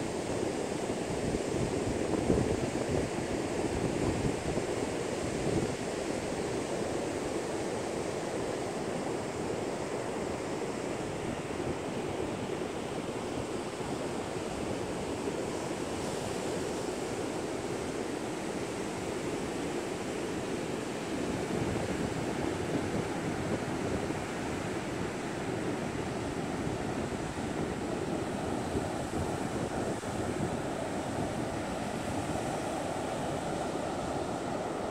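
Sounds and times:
wind on microphone: 21.3 - 34.9.

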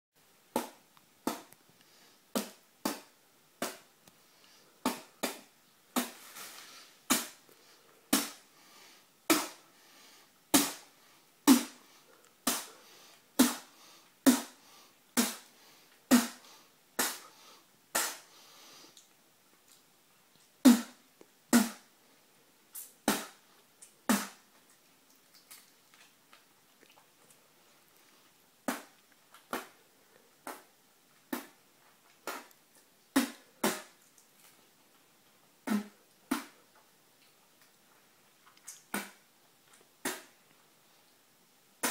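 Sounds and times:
person spitting: 7.1 - 7.4, 12.4 - 12.8, 13.4 - 13.7, 15.2 - 15.5, 16.1 - 16.4, 17.0 - 17.3, 17.9 - 18.3, 20.6 - 21.9, 22.8 - 23.4, 24.1 - 24.4, 28.7 - 29.8, 31.3 - 31.6, 32.2 - 32.6, 33.2 - 34.0, 35.6 - 36.6, 38.6 - 39.2, 40.0 - 40.3.

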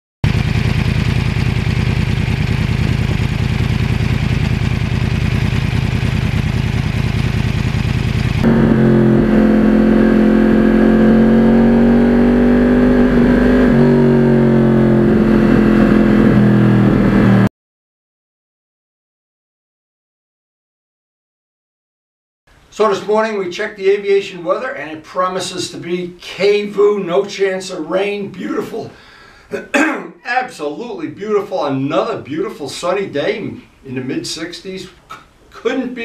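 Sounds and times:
motorcycle engine running rough: 0.2 - 17.5
steady engine tone rising pitch: 7.5 - 17.5.

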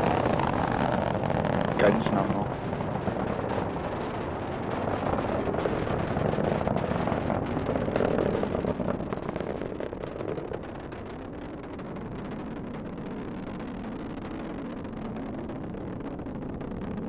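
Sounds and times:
rocket engines crackling rumble: 0.0 - 17.0.

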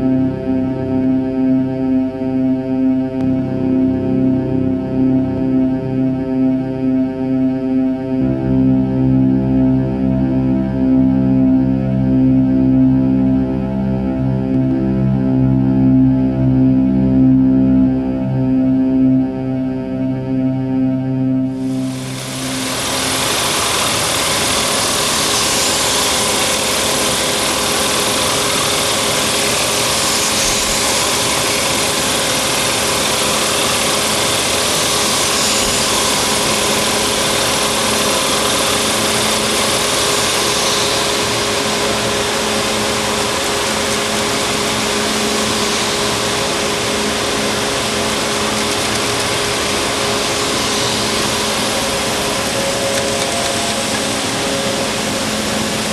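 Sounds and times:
constant machine hum: 0.0 - 55.9
textile machinery running: 21.6 - 55.9.

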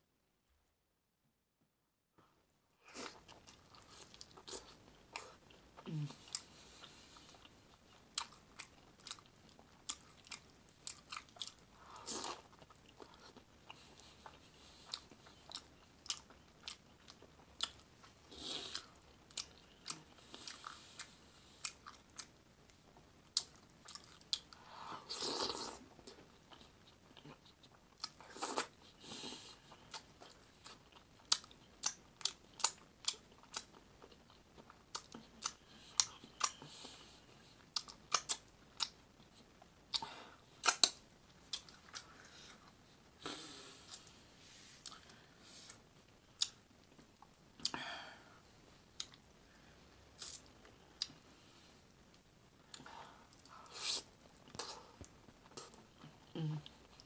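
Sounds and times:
wet mouth clicks and lip smacks: 40.6 - 41.7.

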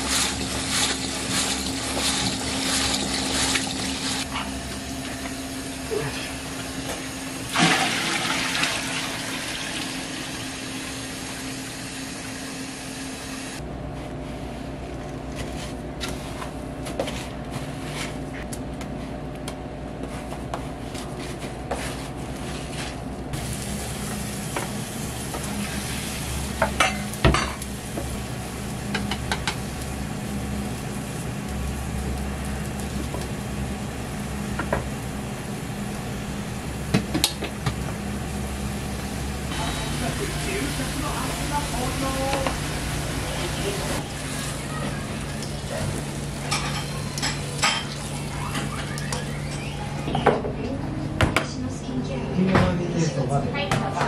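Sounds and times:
egg sizzling in a pan: 0.0 - 13.6, 23.4 - 49.6.

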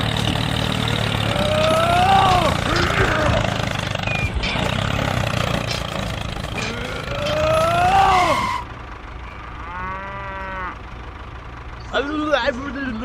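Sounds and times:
tractor engine running: 0.0 - 13.0
drawn-out cow-like call: 1.2 - 3.8, 6.2 - 11.2.

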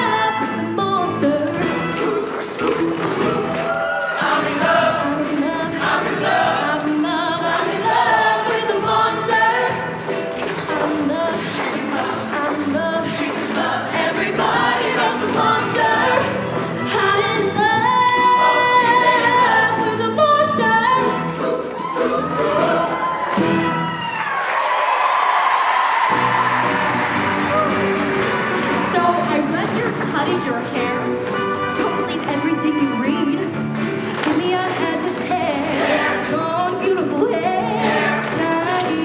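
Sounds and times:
loud musical backing: 0.0 - 39.0
choir singing: 3.6 - 10.0, 11.1 - 23.4, 35.4 - 36.4, 37.3 - 39.0.

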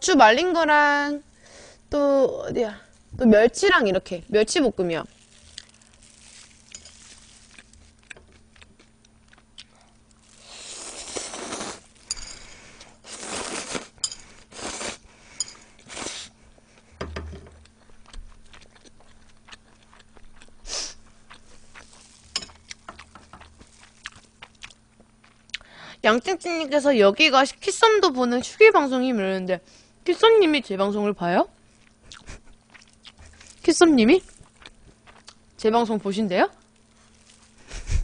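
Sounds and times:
chewing and wet mouth sounds: 4.3 - 15.0, 17.6 - 25.7, 31.7 - 35.6, 36.5 - 37.7.

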